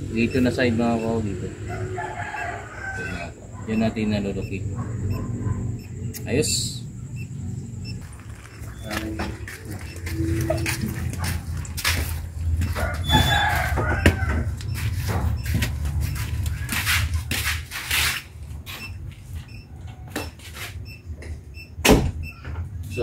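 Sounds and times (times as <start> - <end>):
footsteps: 8.0 - 21.4.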